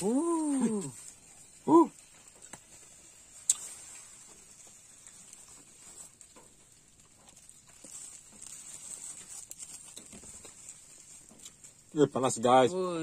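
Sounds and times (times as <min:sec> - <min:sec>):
steady high hiss: 0:00.0 - 0:07.0
plastic bag crinkling: 0:00.0 - 0:13.0.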